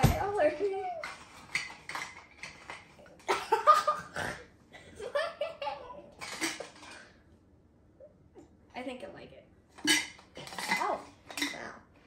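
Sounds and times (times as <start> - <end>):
children laughing: 4.8 - 6.2.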